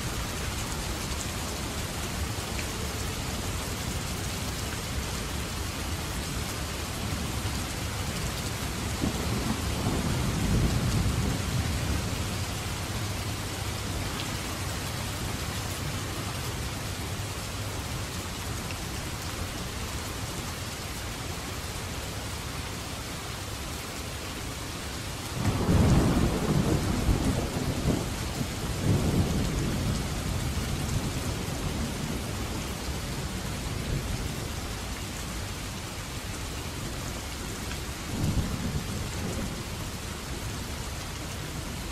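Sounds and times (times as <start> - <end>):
heavy rain downpour: 0.0 - 41.9
thunder rumbling: 8.9 - 12.6, 25.4 - 32.4
loud thunderclap: 25.4 - 30.0.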